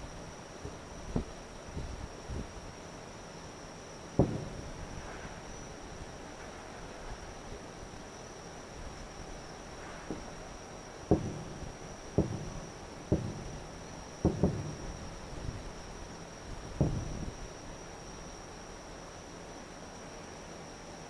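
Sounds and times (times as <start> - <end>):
cricket trill: 0.0 - 21.0
distant fireworks booms: 0.6 - 2.5, 4.0 - 7.3, 9.6 - 16.0, 16.6 - 17.5.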